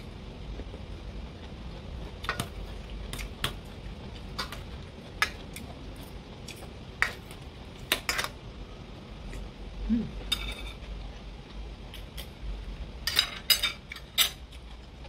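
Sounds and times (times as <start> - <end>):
cutlery clinking on metal bowl: 10.3 - 10.8.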